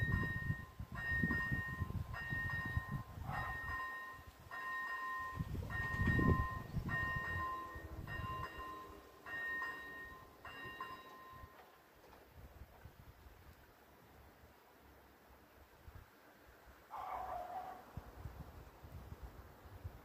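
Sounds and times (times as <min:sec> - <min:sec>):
level crossing warning bell: 0:00.0 - 0:11.8.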